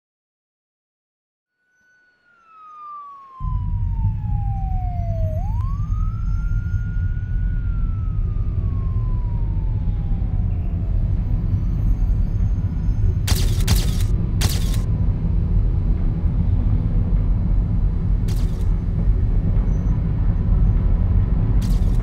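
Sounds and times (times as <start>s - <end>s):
police siren wailing: 1.6s - 14.9s, 18.3s - 19.1s, 21.6s - 22.0s
heavy low rumble: 3.4s - 22.0s.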